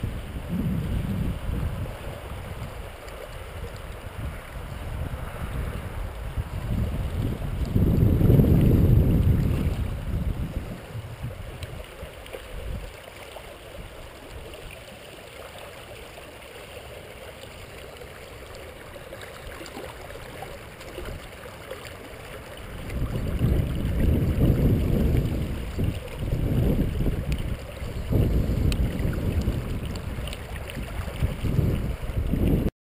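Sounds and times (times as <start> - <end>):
wind buffeting microphone: 0.0 - 12.9, 22.5 - 32.7
shallow river water running: 0.0 - 32.7.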